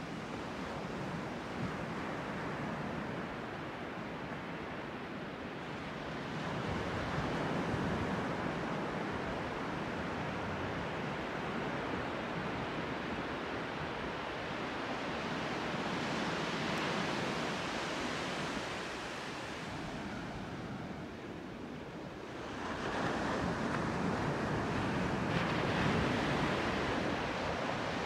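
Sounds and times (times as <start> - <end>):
surf breaking on a sand beach: 22.3 - 28.0.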